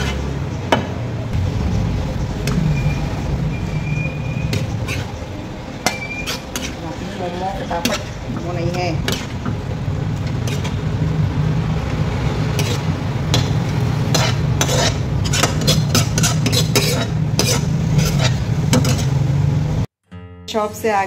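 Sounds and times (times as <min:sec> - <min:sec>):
metal spoon scraping wok: 0:00.0 - 0:00.5, 0:01.4 - 0:19.3
steady low hum: 0:01.1 - 0:15.6.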